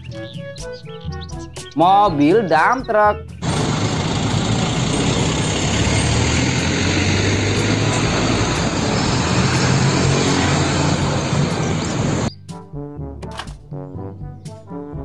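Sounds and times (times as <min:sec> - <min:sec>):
truck diesel engine droning: 0:03.4 - 0:12.3.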